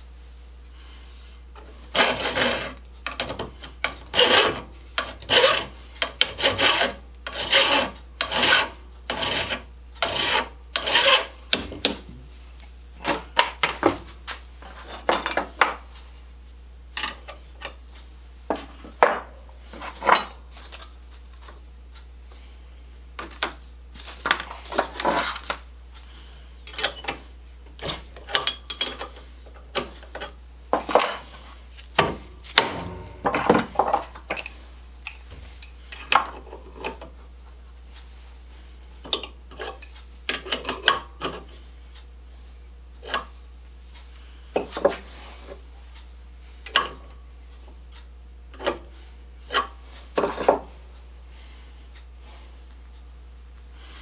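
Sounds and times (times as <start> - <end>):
hand file rasping on metal: 1.9 - 2.8, 4.1 - 11.4.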